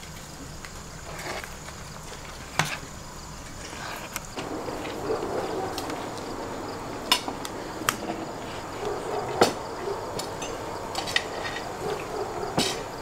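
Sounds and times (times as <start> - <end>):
steady background hiss: 0.0 - 13.0
tableware and skewers clinking: 10.2 - 12.9.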